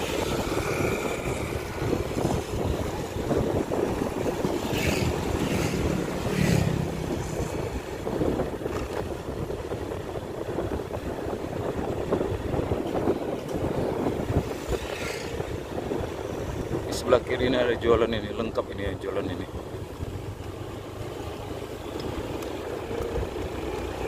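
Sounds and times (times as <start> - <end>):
vehicle passing: 0.0 - 8.7, 14.0 - 16.9
motorcycle engine and tyres: 0.0 - 16.9, 19.5 - 24.0
wind buffeting microphone: 0.0 - 24.0.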